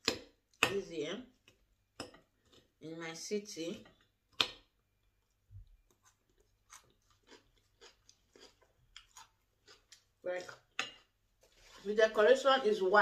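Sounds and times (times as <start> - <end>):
crunchy chewing: 5.8 - 10.8.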